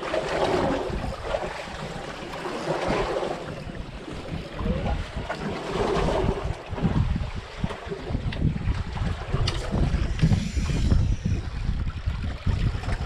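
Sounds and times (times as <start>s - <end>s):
sea water washing around boat: 0.0s - 13.0s
wind gusting on microphone: 2.8s - 13.0s.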